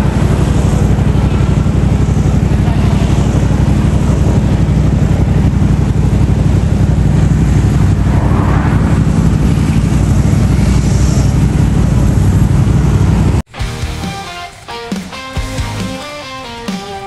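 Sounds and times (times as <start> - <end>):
motorcycles riding past: 0.0 - 13.4
car passing: 6.4 - 13.4.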